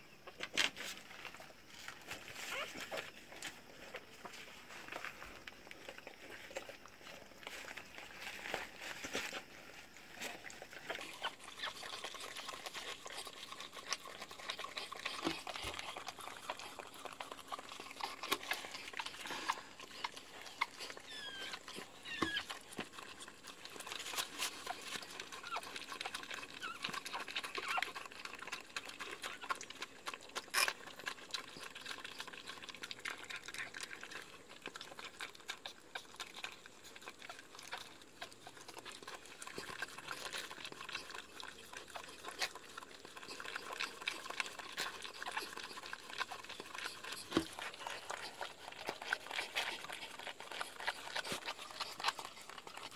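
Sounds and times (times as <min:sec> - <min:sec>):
puppy squeaks: 0:02.5 - 0:02.8, 0:20.9 - 0:22.5, 0:27.6 - 0:27.9
dog wet licking: 0:10.8 - 0:52.9.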